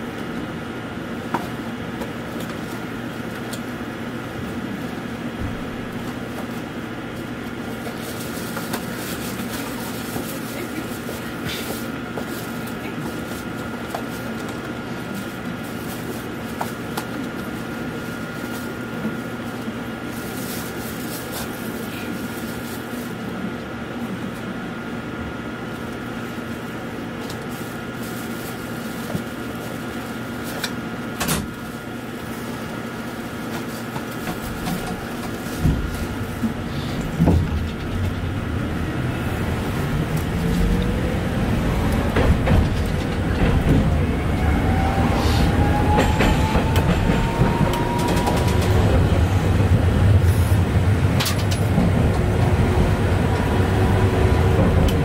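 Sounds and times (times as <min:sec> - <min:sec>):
tram hum and wheel rumble: 0:00.0 - 0:55.0
rising motor whine: 0:38.4 - 0:42.3, 0:43.7 - 0:51.1.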